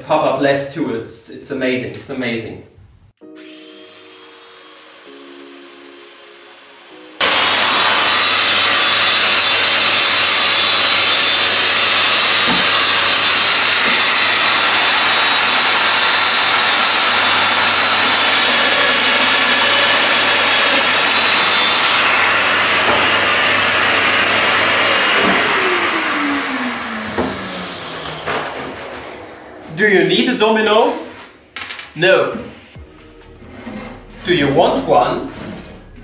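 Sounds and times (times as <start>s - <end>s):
joiner motor running and spinning down: 7.2s - 29.6s.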